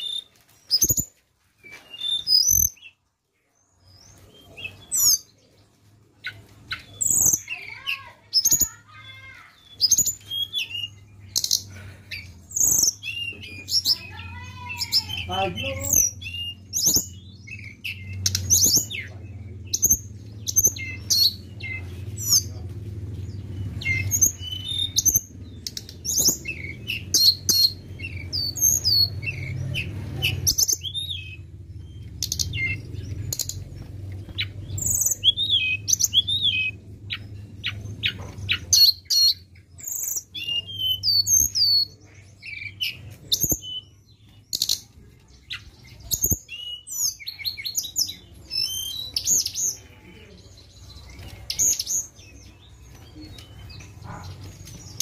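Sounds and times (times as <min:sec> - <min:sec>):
bird chirping and whistling: 0:00.0 - 0:03.0, 0:06.2 - 0:08.8, 0:09.5 - 0:22.5, 0:23.8 - 0:33.6, 0:34.3 - 0:44.8, 0:45.5 - 0:49.8.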